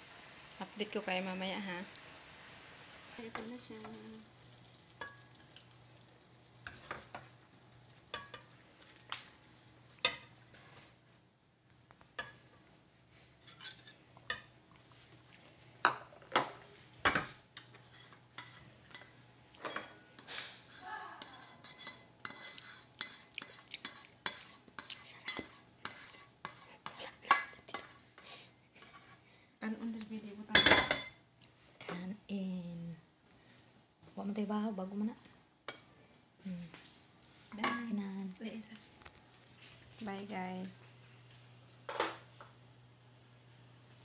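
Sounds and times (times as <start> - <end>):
spatula scraping pan: 15.9 - 29.3.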